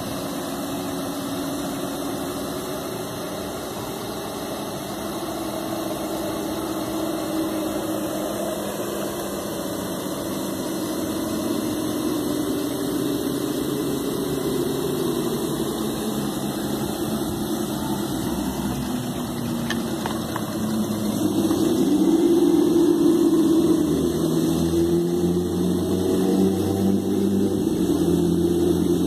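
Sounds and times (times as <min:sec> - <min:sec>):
rc car electric motor whining: 0:00.0 - 0:29.0.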